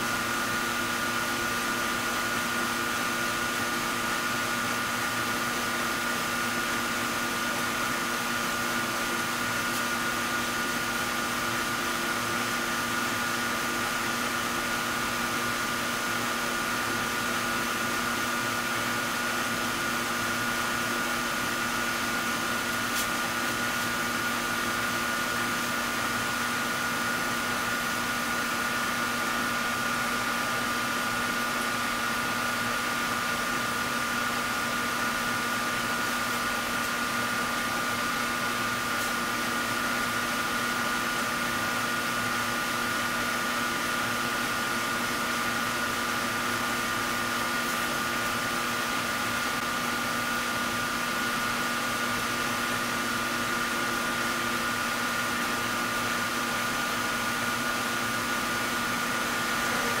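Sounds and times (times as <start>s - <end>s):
mechanical fan whir: 0.0s - 60.0s.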